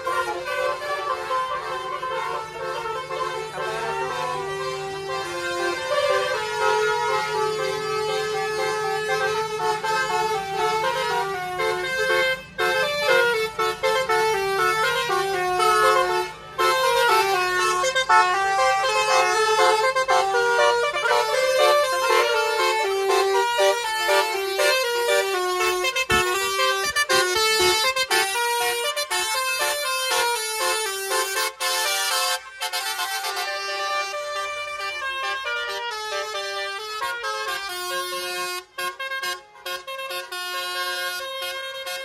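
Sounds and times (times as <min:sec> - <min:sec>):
musical car horns playing a tune: 0:00.0 - 0:42.0.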